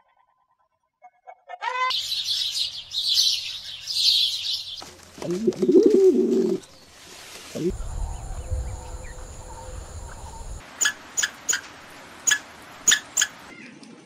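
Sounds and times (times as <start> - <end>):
small birds chirping: 1.9 - 6.9, 7.6 - 10.6
dove cooing: 5.2 - 6.6.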